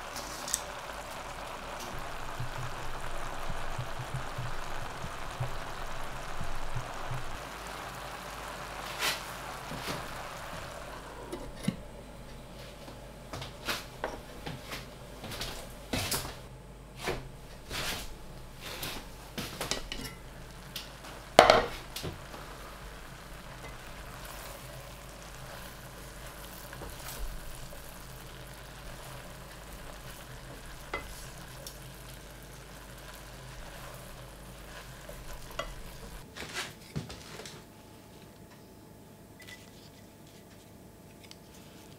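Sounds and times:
food simmering: 0.0s - 16.4s, 17.2s - 36.3s
food sizzling in a pan: 0.0s - 36.3s.

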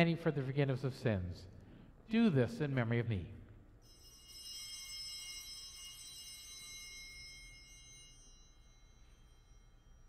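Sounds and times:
altar bell ringing: 3.7s - 10.0s.

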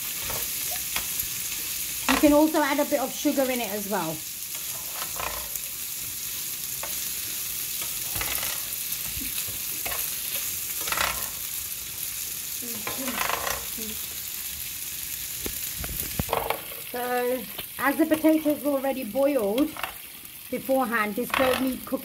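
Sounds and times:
potatoes sizzling in a pan: 0.0s - 22.0s
spatula scraping a pan: 4.5s - 11.6s, 12.8s - 13.8s.

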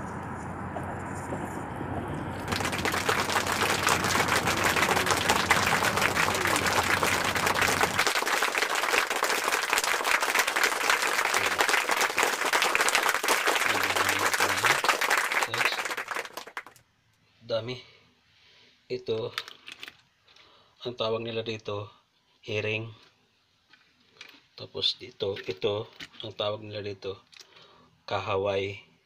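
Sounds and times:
crowd applauding: 2.4s - 16.8s.

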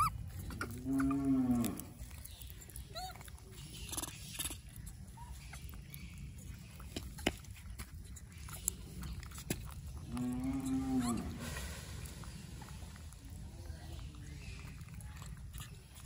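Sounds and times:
cow mooing: 0.8s - 2.0s, 10.1s - 11.4s.

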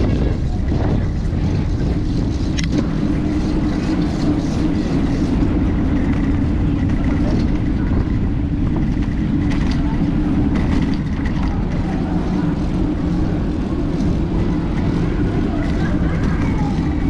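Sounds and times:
bicycle tyres on tarmac: 0.0s - 17.0s
wind buffeting microphone: 0.0s - 17.0s.

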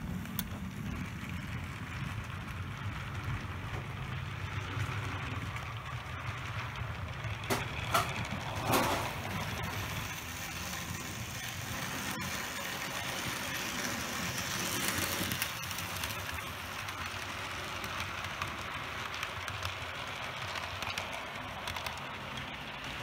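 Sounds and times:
model train motor whirring: 0.0s - 23.0s
click: 0.3s - 0.5s.

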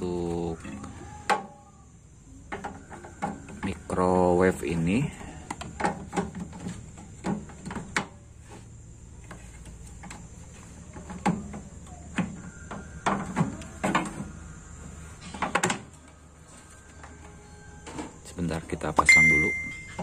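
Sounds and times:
clicks and knocks of handled plastic: 5.2s - 8.2s.

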